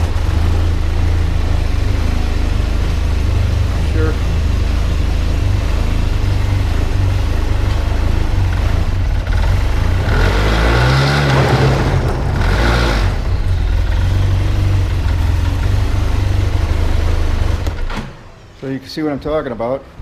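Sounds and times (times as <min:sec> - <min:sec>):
snowmobile engine revving: 0:05.6 - 0:17.5.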